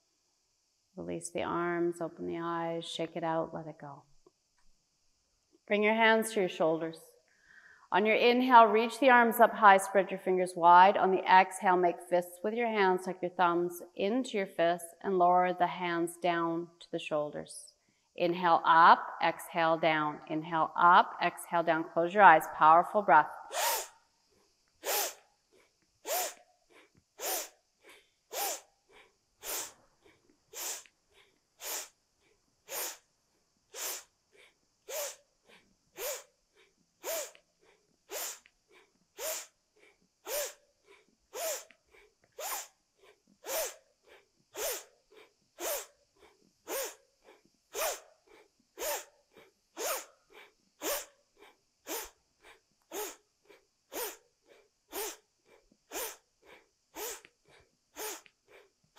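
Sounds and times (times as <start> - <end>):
woman doing rhythmic forceful breathing: 7.3 - 8.0, 22.3 - 58.9.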